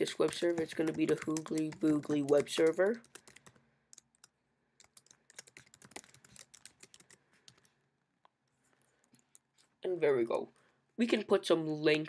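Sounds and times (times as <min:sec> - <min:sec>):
typing on computer keyboard: 0:00.0 - 0:07.7.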